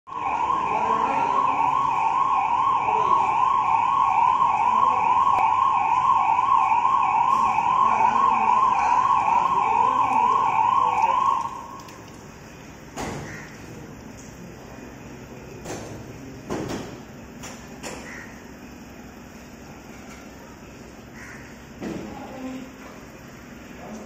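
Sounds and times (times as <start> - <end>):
ambulance siren warbling: 0.1 - 12.1.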